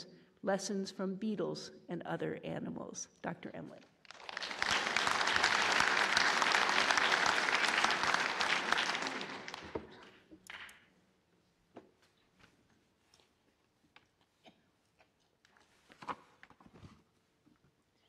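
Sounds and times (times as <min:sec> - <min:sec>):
audience applauding: 0:04.1 - 0:10.2.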